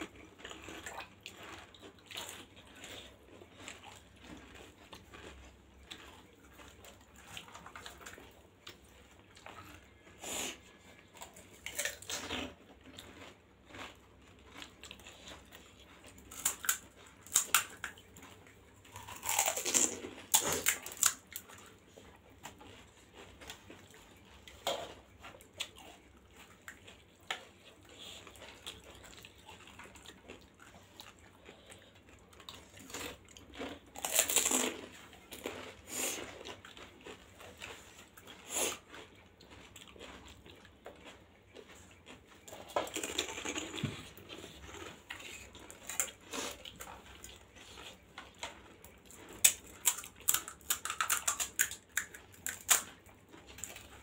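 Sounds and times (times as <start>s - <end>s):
close-miked chewing and biting: 0.0s - 54.0s
crisp shells crunching: 18.9s - 21.3s, 32.8s - 35.7s.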